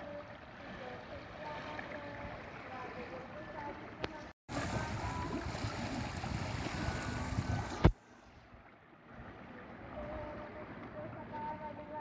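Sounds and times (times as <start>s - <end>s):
water rushing and splashing: 0.0s - 12.0s
wind on microphone: 4.5s - 8.6s.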